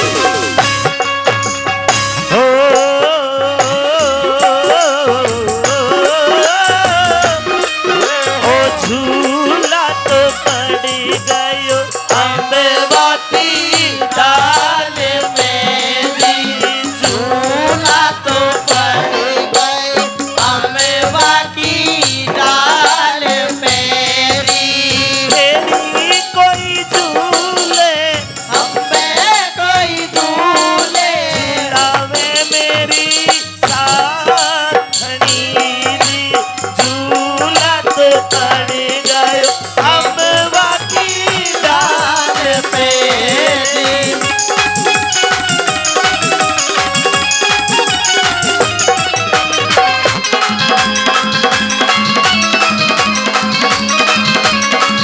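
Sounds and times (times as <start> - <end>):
dholak drum beat: 0.0 - 55.0
harmonium: 0.0 - 55.0
rattling percussion: 0.0 - 55.0
person singing wavering melody: 2.3 - 45.2.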